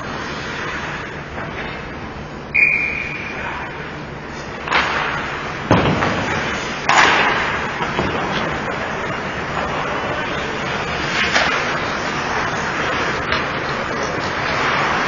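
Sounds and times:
referee's whistle blast: 2.5s - 3.4s
loud bangs against boards: 4.8s - 8.5s.

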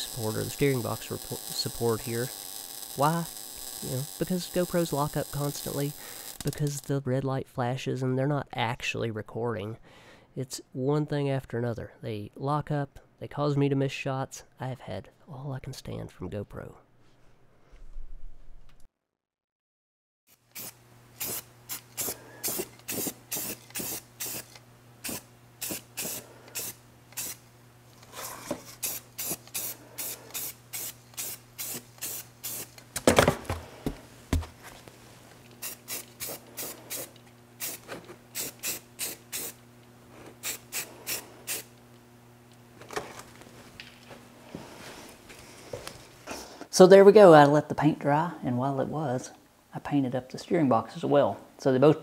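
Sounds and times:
spray can bursts: 20.3s - 27.5s, 28.7s - 32.8s, 35.6s - 39.6s, 40.4s - 41.8s
steady low hum: 20.6s - 46.7s.

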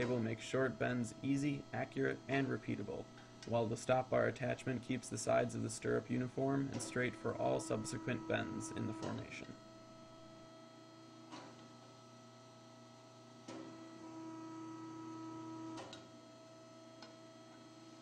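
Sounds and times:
bending machine humming: 0.0s - 11.5s
motor whine: 6.8s - 11.0s.

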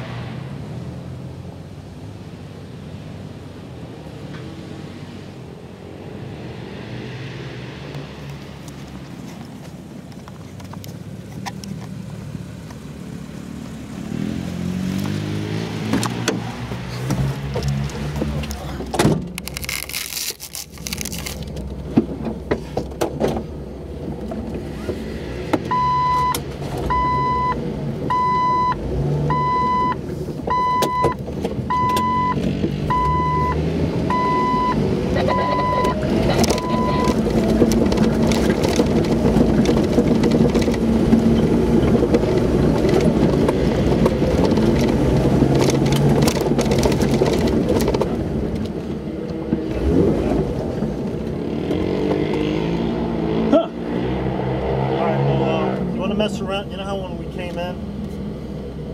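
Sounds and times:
car engine running: 15.8s - 52.2s
dashboard warning chime beeping: 25.7s - 37.2s
knocks and rattles: 36.3s - 48.2s.

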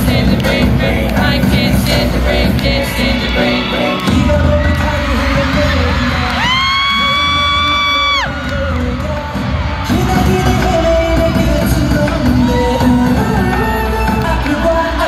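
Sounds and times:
crowd noise: 0.0s - 15.0s
pop concert music with singing: 0.0s - 15.0s
high-pitched scream: 3.2s - 8.8s.

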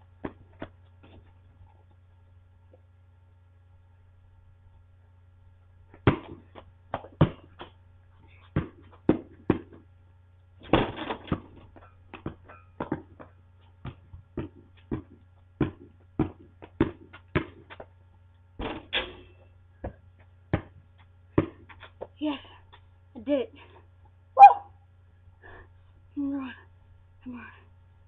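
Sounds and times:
basketball bouncing on pavement: 0.1s - 1.3s, 5.9s - 7.8s, 8.4s - 10.0s, 10.6s - 19.0s, 19.8s - 22.8s
ball clattering on rim and backboard: 10.6s - 17.8s, 18.6s - 20.8s.

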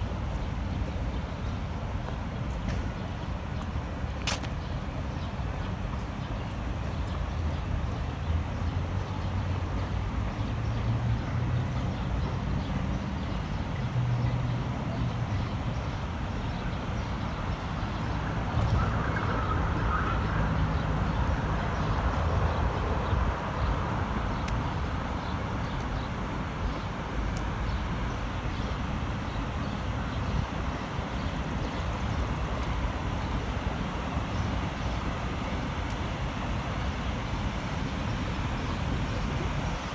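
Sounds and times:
city traffic rumble: 0.0s - 39.9s.

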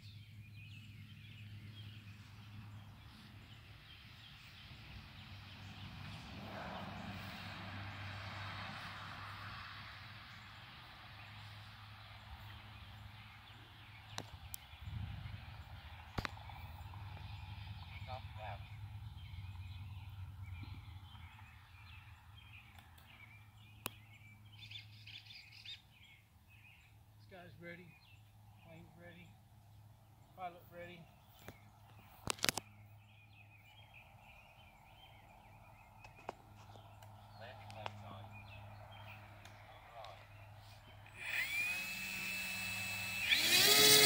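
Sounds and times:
bird chirping: 0.0s - 6.3s, 10.3s - 44.0s.

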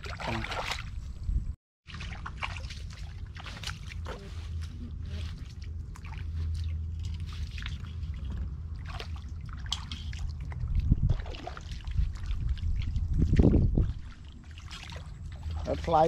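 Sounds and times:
footsteps splashing through water: 0.0s - 1.0s, 1.9s - 16.0s
steady low rumble: 0.1s - 16.0s.

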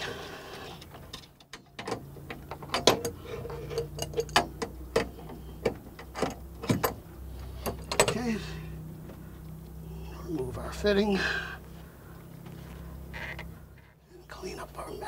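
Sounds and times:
tools and metal parts clinking: 0.9s - 8.5s.

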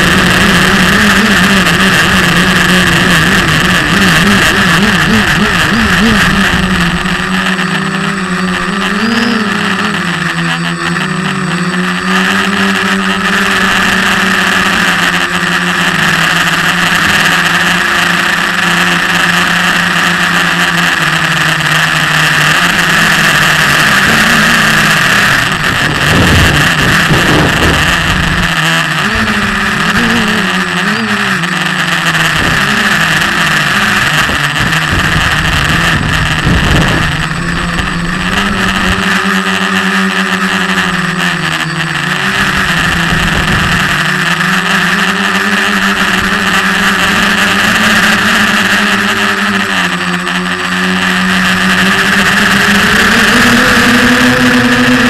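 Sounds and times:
quadcopter motors droning and whining: 0.0s - 55.0s.

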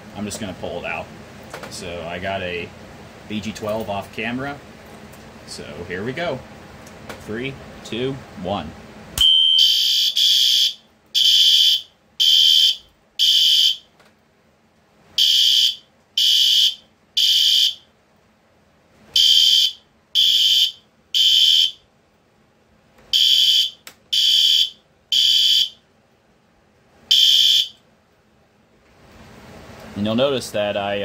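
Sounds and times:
high-pitched alarm horn blasts: 9.2s - 13.9s, 15.2s - 17.8s, 19.2s - 21.8s, 23.1s - 25.8s, 27.1s - 27.8s.

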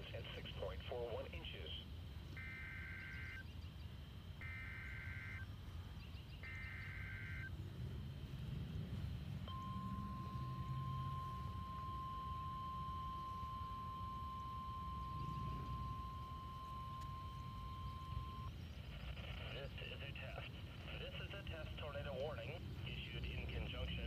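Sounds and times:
steady radio alert tone: 0.0s - 3.4s, 4.4s - 5.4s, 6.4s - 7.5s, 9.5s - 18.5s, 19.1s - 24.0s
low background rumble: 5.4s - 24.0s.

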